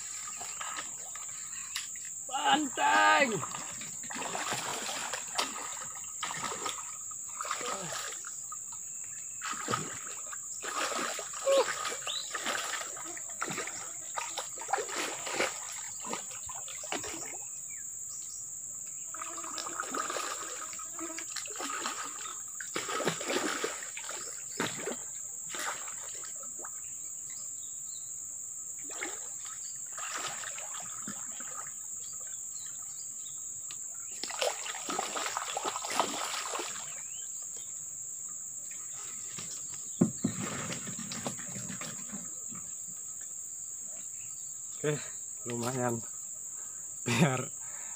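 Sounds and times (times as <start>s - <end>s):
fish splashing in water: 3.3s - 8.3s, 9.4s - 17.4s, 19.4s - 26.3s, 34.2s - 37.0s.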